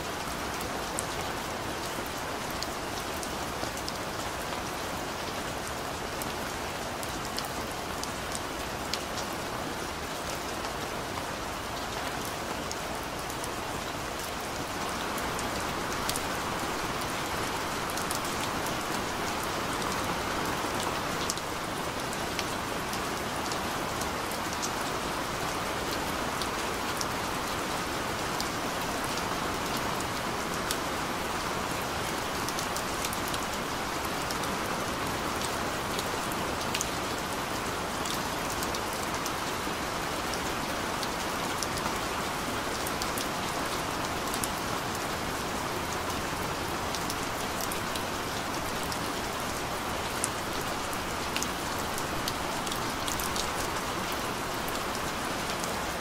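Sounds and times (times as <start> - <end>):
steady rain hiss: 0.0 - 56.0.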